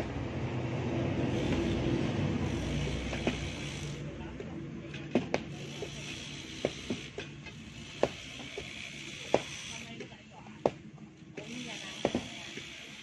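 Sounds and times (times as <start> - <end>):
low engine hum: 0.0 - 8.8.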